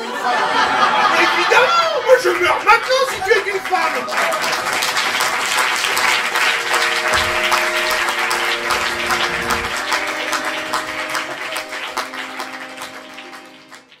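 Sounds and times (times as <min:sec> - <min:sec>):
audience applauding: 0:00.0 - 0:14.0
music with held notes: 0:05.0 - 0:14.0.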